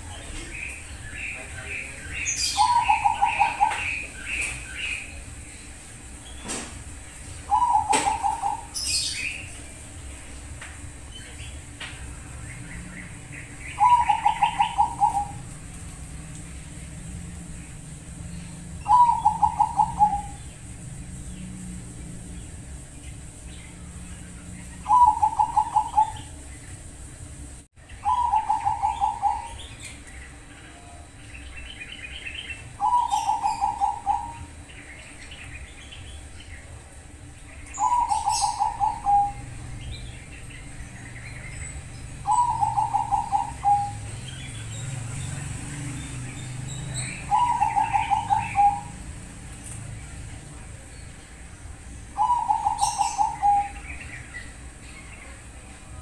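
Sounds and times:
dove cooing: 0.0 - 5.4, 7.1 - 10.0, 13.0 - 22.3, 24.2 - 26.4, 28.0 - 29.8, 32.2 - 34.6, 37.7 - 39.8, 42.0 - 44.5, 46.4 - 49.4, 52.1 - 54.3
small birds chirping: 0.0 - 56.0.

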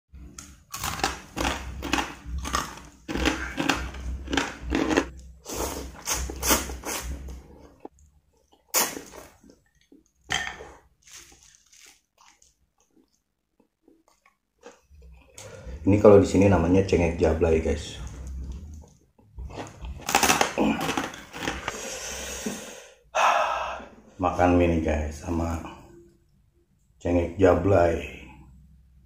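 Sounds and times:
crunching rice cracker: 0.4 - 5.3, 11.0 - 13.7, 19.5 - 21.8.

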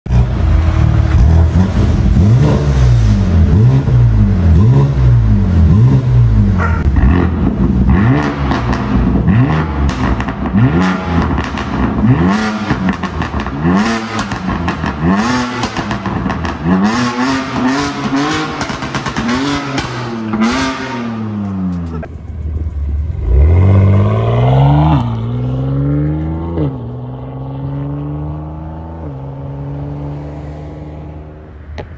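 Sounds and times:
car engine revving in blips: 0.1 - 22.2.

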